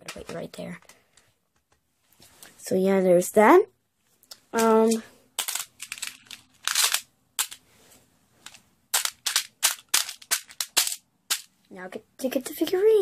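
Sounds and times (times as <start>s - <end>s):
pebbles clicking and clattering: 4.6s - 7.6s, 8.4s - 11.5s.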